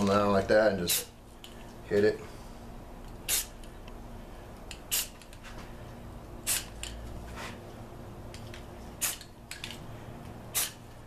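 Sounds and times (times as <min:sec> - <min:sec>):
spray-paint can hissing: 0:03.2 - 0:03.6, 0:04.9 - 0:05.3, 0:06.4 - 0:06.8, 0:09.0 - 0:09.3, 0:10.5 - 0:10.8.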